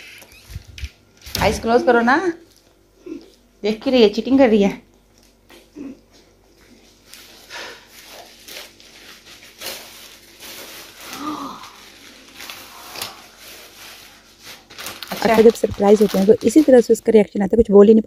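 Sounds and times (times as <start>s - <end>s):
plastic bag rustling and crinkling: 0.0s - 1.8s, 6.7s - 17.2s.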